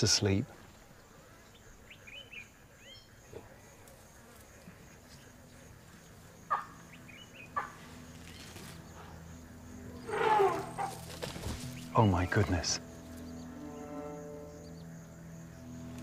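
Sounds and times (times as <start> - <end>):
insects buzzing: 0.0 - 16.0
bird chirps: 1.4 - 3.2.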